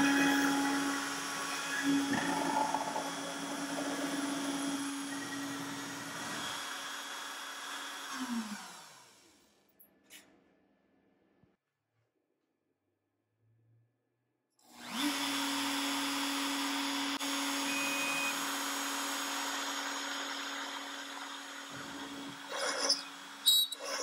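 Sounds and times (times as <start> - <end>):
router high whine: 0.0 - 9.3, 14.7 - 24.0.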